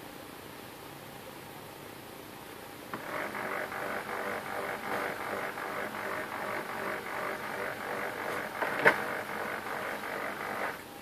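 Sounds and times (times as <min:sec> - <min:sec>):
printer motor whirring: 0:02.9 - 0:10.9.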